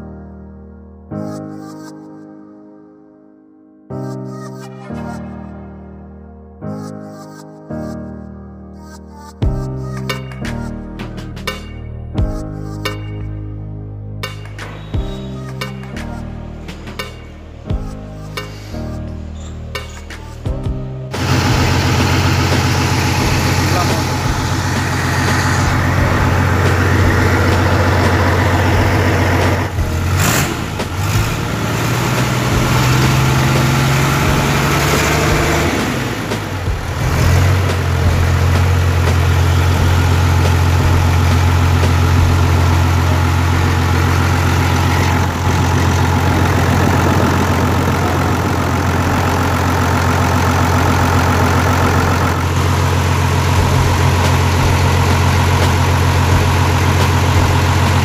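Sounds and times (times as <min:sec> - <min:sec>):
diesel engine idling and revving: 0:21.1 - 0:58.0.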